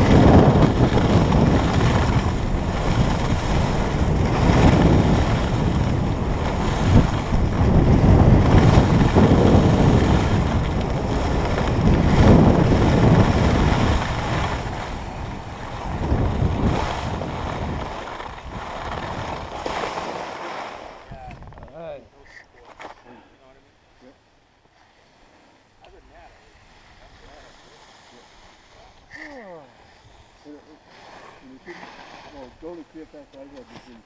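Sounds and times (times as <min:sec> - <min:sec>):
skis scraping on snow: 0:00.0 - 0:22.0, 0:24.7 - 0:34.0
wind buffeting microphone: 0:00.0 - 0:22.3.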